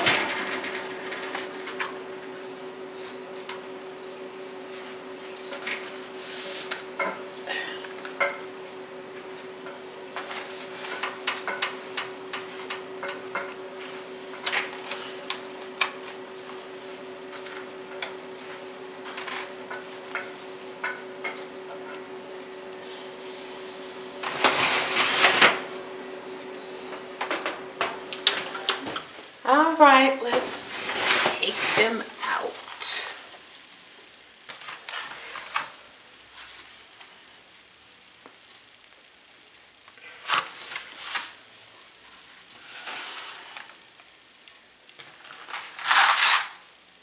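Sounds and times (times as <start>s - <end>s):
steady hum: 0.0s - 40.2s
foil pans clicking on oven rack: 10.2s - 13.6s.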